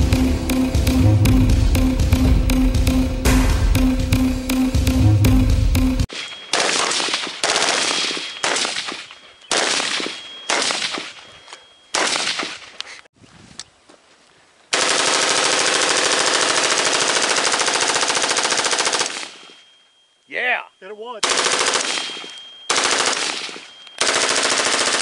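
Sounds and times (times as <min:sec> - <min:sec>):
suppressed automatic rifle bursts: 0:21.2 - 0:25.0.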